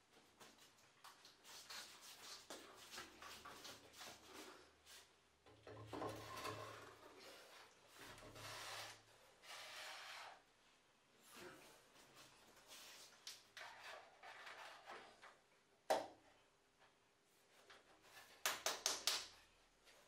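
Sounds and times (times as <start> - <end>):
wooden board scraping on board: 6.1 - 10.4.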